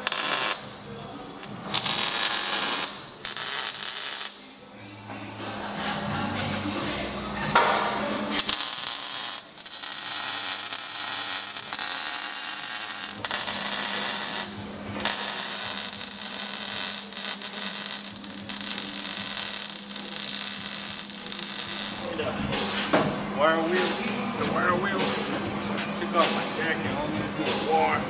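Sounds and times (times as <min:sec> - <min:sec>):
welder crackling hiss: 0:00.0 - 0:00.8, 0:01.4 - 0:04.4, 0:08.3 - 0:22.2.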